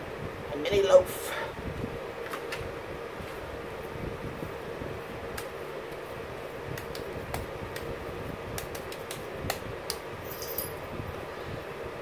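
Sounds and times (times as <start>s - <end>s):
appliance humming: 0.0s - 12.0s
hands patting ground meat: 5.3s - 10.1s.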